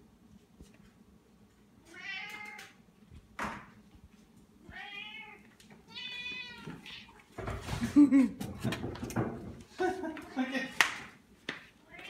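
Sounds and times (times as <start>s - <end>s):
cat meowing: 1.9s - 2.7s, 4.6s - 7.2s.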